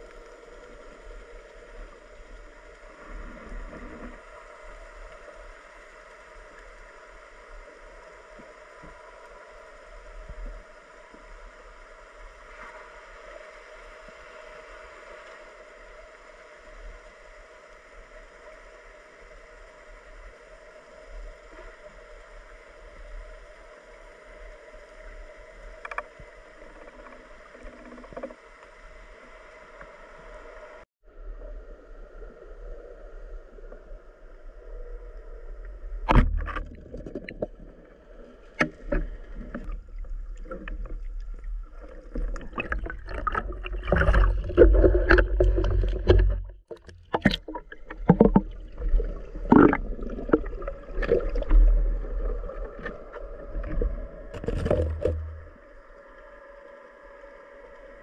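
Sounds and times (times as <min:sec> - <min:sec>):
water sloshing and splashing: 0:36.1 - 0:55.6.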